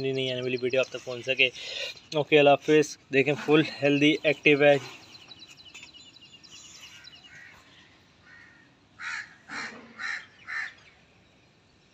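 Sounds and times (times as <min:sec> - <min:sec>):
small birds chirping: 0:00.0 - 0:11.9
crows cawing: 0:06.8 - 0:10.8.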